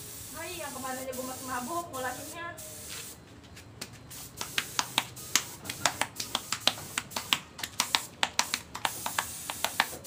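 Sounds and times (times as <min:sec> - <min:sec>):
faint hiss: 0:00.0 - 0:03.2, 0:04.1 - 0:10.0.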